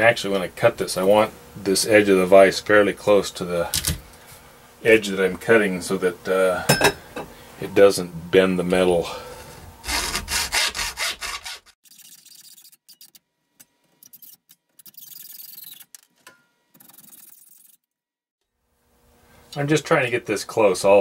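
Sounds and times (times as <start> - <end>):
hacksaw cutting metal: 9.8 - 11.8.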